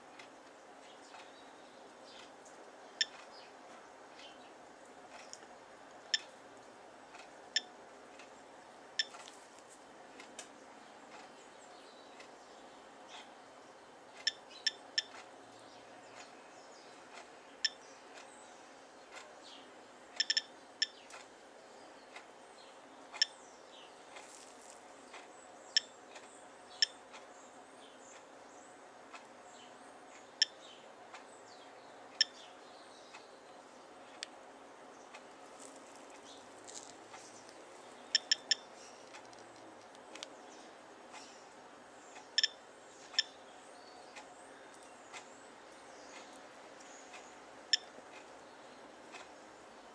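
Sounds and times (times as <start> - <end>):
radiation counter clicking: 3.0 - 3.3, 6.0 - 6.3, 7.2 - 7.8, 9.0 - 9.2, 14.2 - 15.3, 20.2 - 21.0, 26.8 - 27.3, 38.1 - 39.6, 42.2 - 43.4, 46.1 - 48.4.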